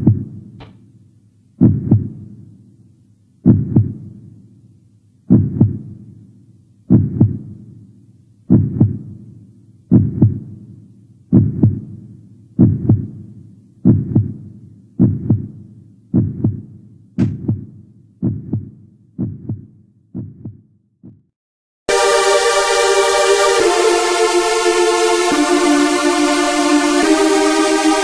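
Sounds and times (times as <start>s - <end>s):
heartbeat thumps: 0.0s - 0.7s, 1.6s - 2.4s, 3.4s - 4.2s, 5.3s - 6.1s, 6.9s - 7.7s, 8.5s - 9.3s, 9.9s - 10.7s, 11.3s - 12.0s, 12.6s - 21.3s.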